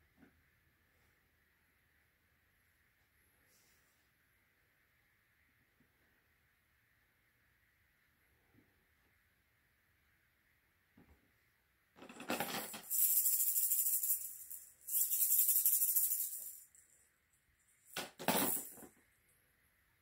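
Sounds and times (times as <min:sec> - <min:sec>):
bells and plastic toys rattling: 0:12.0 - 0:17.0, 0:17.8 - 0:18.9.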